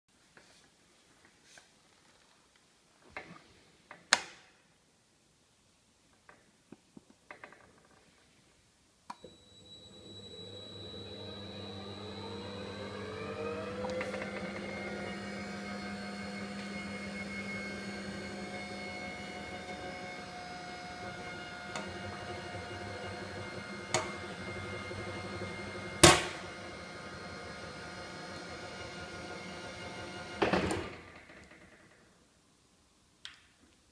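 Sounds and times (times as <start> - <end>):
electric motor whine: 9.2 - 30.5.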